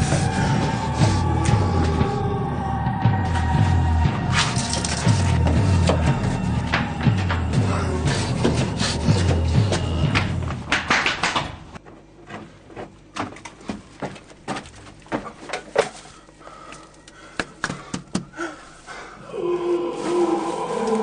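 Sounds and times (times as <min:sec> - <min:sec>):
low growling moan: 0:00.0 - 0:10.7, 0:19.2 - 0:21.0
knocks and scuffs: 0:06.7 - 0:16.0.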